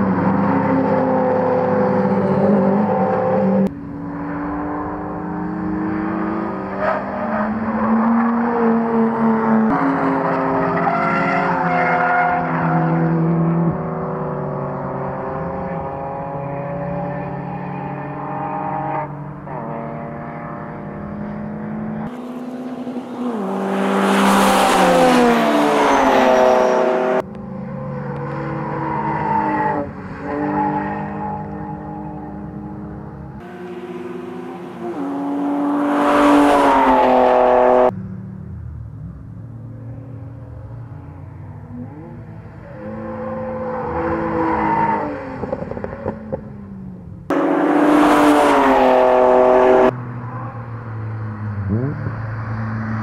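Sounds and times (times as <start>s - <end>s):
car engine revving hard: 33.4s - 37.9s, 47.3s - 49.9s.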